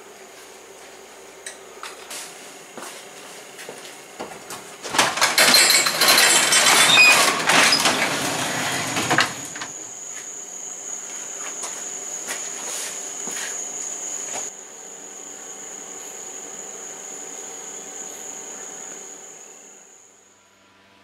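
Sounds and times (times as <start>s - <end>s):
crickets chirping: 0.0s - 20.4s
garage door rollers rattling: 4.8s - 9.8s.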